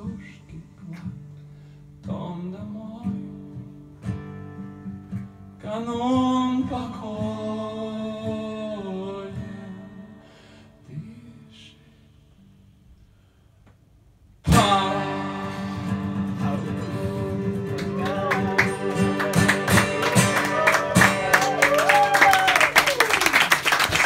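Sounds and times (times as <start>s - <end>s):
man singing: 0.0s - 1.2s, 2.0s - 3.4s, 5.6s - 10.2s, 10.8s - 12.0s, 14.5s - 22.0s
acoustic guitar strumming: 0.0s - 10.6s, 14.4s - 21.9s.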